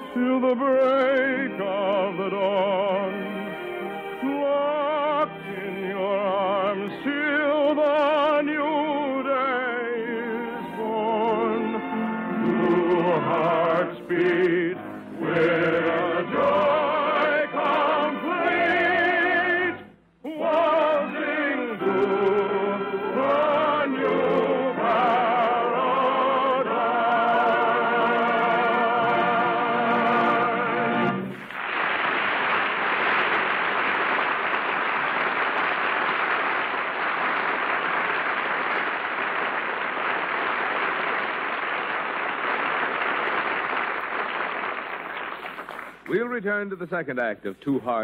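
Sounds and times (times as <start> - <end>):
operatic singing: 0.0 - 31.3
audience applause: 31.4 - 46.0.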